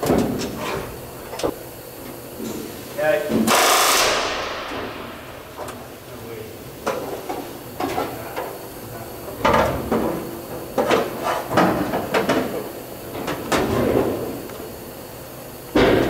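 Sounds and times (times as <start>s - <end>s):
pneumatic rivet gun hammering: 3.4s - 4.8s.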